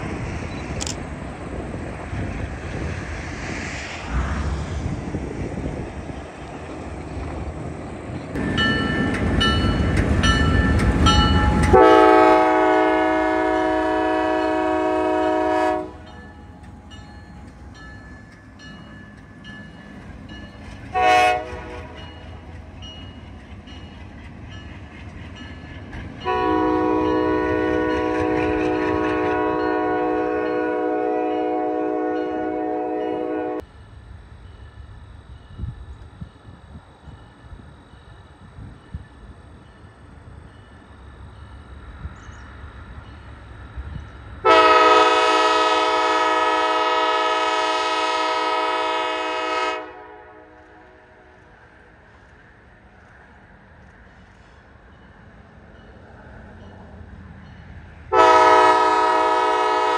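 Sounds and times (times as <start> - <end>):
locomotive air horn: 11.6 - 16.1, 20.9 - 22.1, 26.2 - 33.7, 44.4 - 51.3, 58.1 - 59.9.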